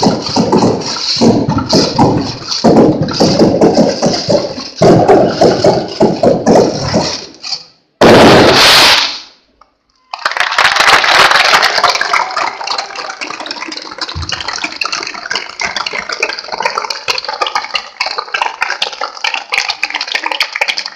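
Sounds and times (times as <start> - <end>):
firework burst: 8.0 - 9.4
crowd applauding: 10.1 - 16.2.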